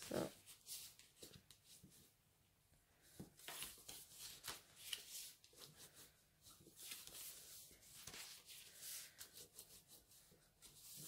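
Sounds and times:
paper rustling and scraping: 3.0s - 11.0s.

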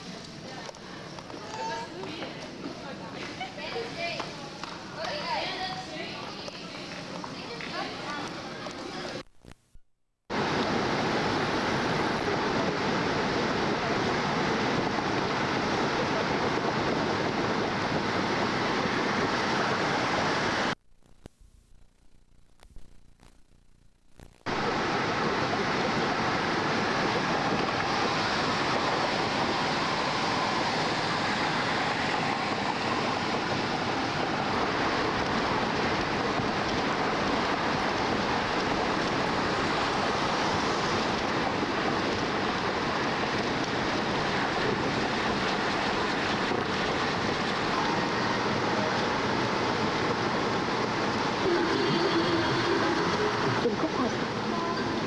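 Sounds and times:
road and wind noise in car: 10.3s - 20.8s, 24.5s - 55.0s.

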